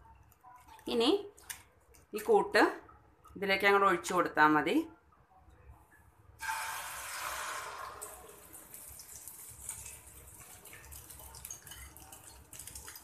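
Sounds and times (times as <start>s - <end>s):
batter sizzling in hot oil: 6.4s - 13.0s.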